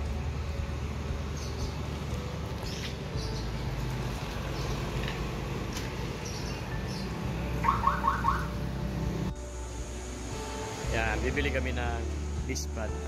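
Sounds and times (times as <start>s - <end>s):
high bird chirps: 6.2s - 8.5s.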